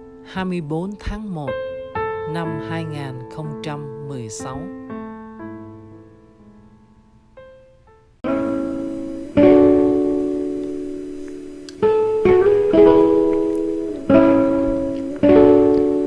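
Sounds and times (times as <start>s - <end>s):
guitar strumming slow chords: 8.2s - 16.0s.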